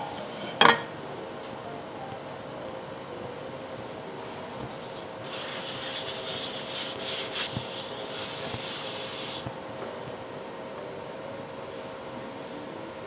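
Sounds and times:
paper towel rubbing a pan: 4.8s - 9.5s.

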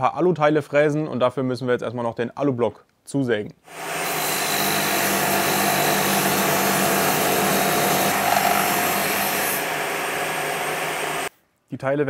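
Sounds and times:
power saw cutting metal: 3.7s - 11.3s.

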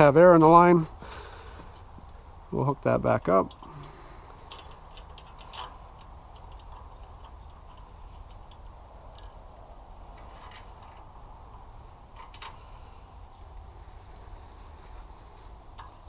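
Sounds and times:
low steady background noise: 0.0s - 16.0s
metallic clicks of wrench and fittings: 3.5s - 9.4s.

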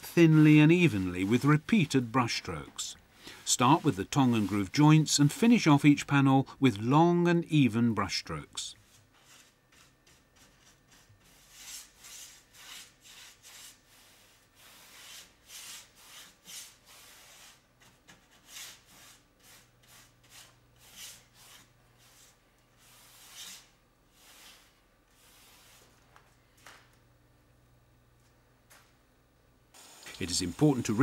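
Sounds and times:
paintbrush swishing on wood: 0.0s - 2.8s, 3.5s - 4.8s.

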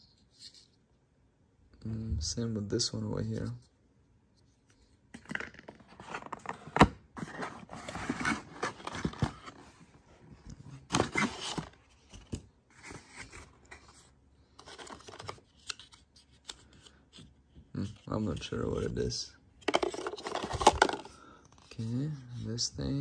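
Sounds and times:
plastic and cardboard rustling: 5.2s - 16.8s, 19.6s - 22.6s.

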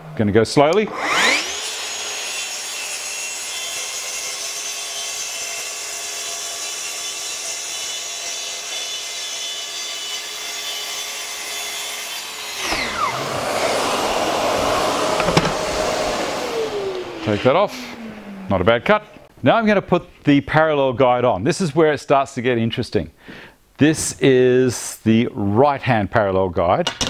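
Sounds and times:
circular saw cutting board: 0.6s - 19.3s
dust extractor rushing: 0.8s - 2.3s, 12.3s - 19.3s.

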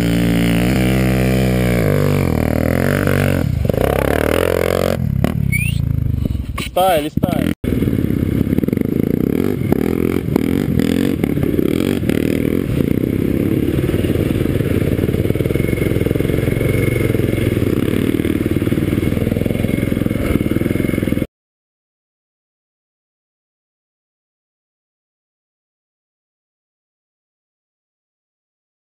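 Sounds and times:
dirt bike engine running: 0.0s - 21.3s.

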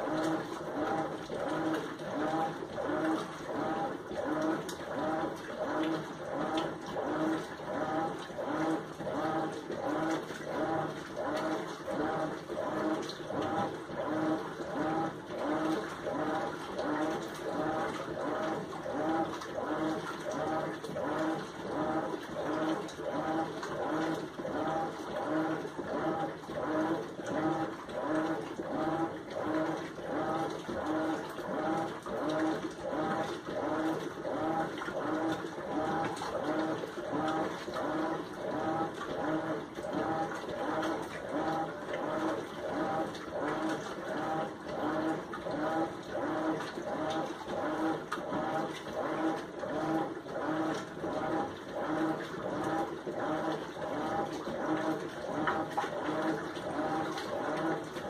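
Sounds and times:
washing machine agitating clothes: 0.0s - 58.0s.

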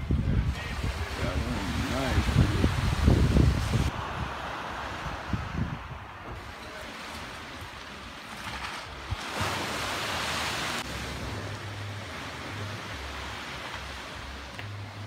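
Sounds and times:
wind on microphone: 0.0s - 7.8s
low wind buffeting: 0.0s - 14.4s.

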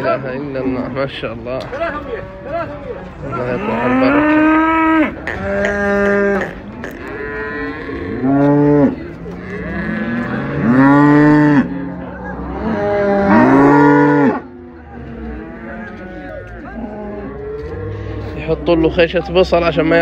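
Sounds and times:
cattle mooing: 3.2s - 19.1s.

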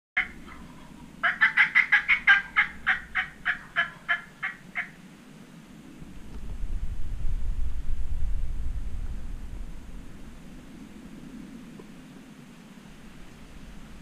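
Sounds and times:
turkey calling: 0.2s - 5.1s
low rumble: 5.8s - 11.6s.

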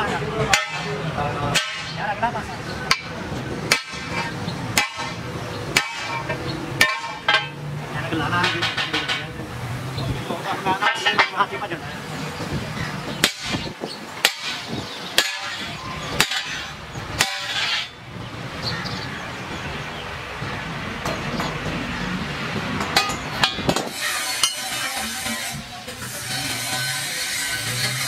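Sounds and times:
hammer striking steel bar: 0.5s - 2.0s, 2.9s - 7.6s, 13.2s - 18.0s, 22.8s - 28.0s.

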